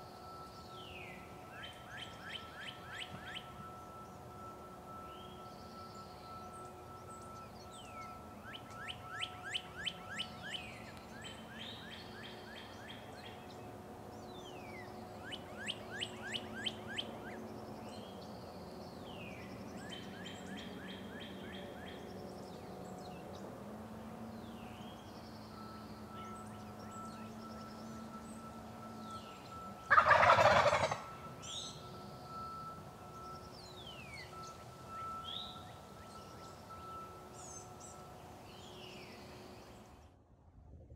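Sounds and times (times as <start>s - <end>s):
songbirds chirping trills: 0.0s - 40.2s
wild turkey gobble: 29.2s - 31.8s.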